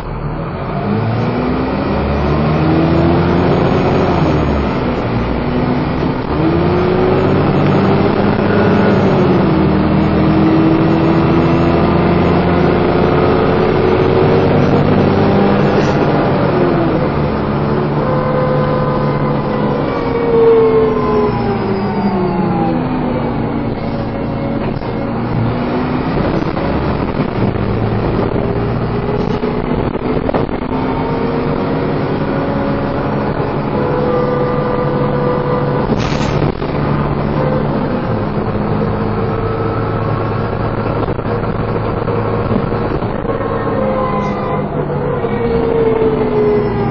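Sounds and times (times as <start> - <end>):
bus drivetrain whine: 0.0 - 46.9.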